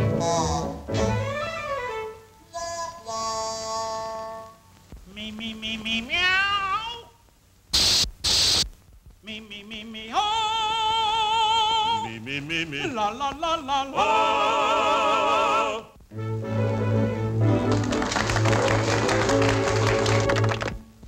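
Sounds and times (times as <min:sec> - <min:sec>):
cartoon cat operatic singing: 0:05.3 - 0:07.1
throat atomizer spraying: 0:07.7 - 0:08.7.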